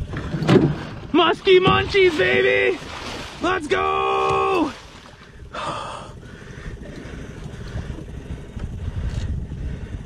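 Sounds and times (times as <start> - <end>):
boat motor running: 0.0 - 10.0
wind on microphone: 6.6 - 10.0.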